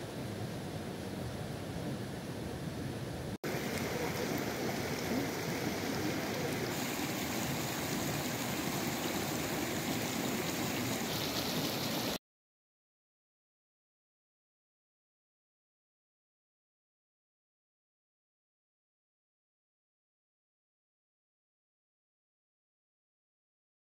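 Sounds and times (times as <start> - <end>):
stream running over rocks: 3.4 - 12.2.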